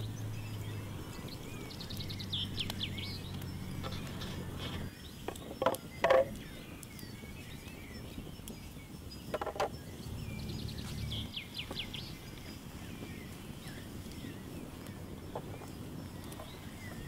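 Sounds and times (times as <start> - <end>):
birds chirping: 0.0 - 17.0
clatter of knocks: 5.3 - 6.4, 9.3 - 9.7
wooden board knocks: 5.6 - 6.3, 9.3 - 9.7.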